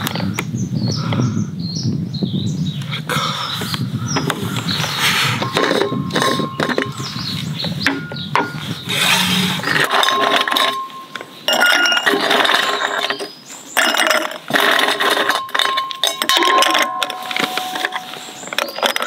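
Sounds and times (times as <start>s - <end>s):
glass ringing faintly: 15.4s - 18.8s.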